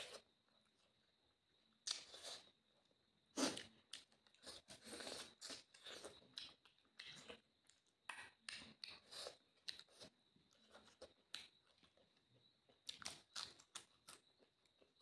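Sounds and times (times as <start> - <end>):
person chewing with crunches: 1.7 - 2.6, 3.3 - 15.0.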